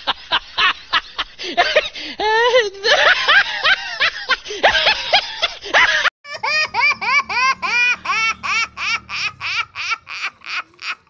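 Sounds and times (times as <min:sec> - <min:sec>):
person laughing: 0:01.6 - 0:11.0
burst of other laughter: 0:04.6 - 0:11.0.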